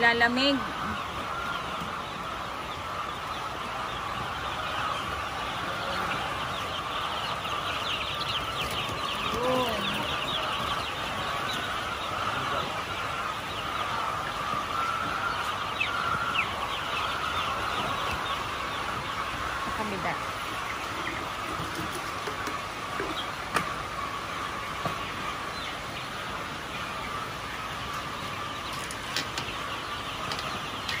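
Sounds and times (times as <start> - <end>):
chicks peeping: 0.0 - 31.0.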